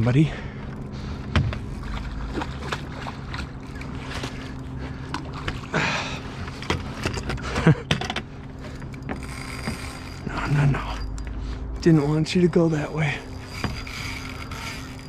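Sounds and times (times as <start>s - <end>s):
steady low hum: 0.0s - 15.0s
fish thrashing and splashing: 1.1s - 10.4s.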